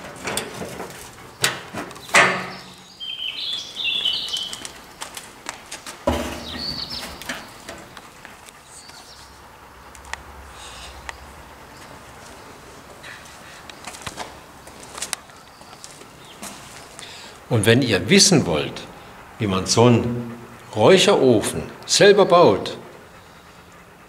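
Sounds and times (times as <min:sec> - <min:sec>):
metal lid clanking: 0:00.0 - 0:02.8, 0:06.1 - 0:07.9.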